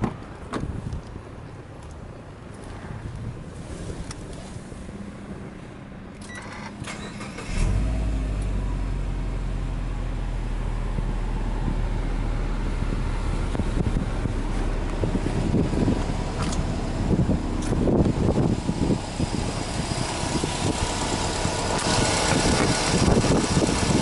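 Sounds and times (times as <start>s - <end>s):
car engine starting and idling: 5.2s - 24.0s.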